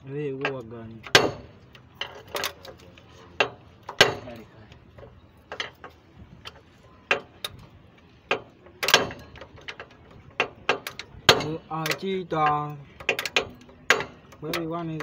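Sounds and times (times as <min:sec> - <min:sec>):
pliers clicking against metal wire: 0:08.8 - 0:15.0.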